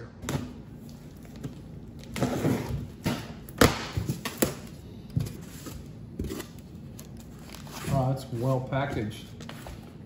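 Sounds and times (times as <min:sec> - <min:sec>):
cardboard flaps rustling and scraping: 0:05.1 - 0:10.0.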